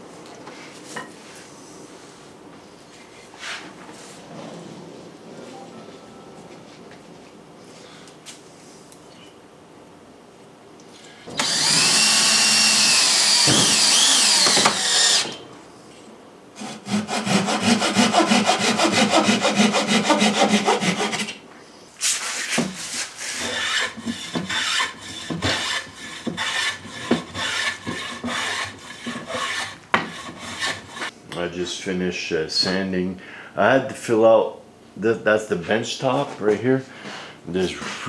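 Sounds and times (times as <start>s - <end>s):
hand saw cutting wood: 11.4s - 15.4s, 16.6s - 21.4s, 22.2s - 31.1s
rasp filing board edge: 16.6s - 21.3s, 22.2s - 31.1s.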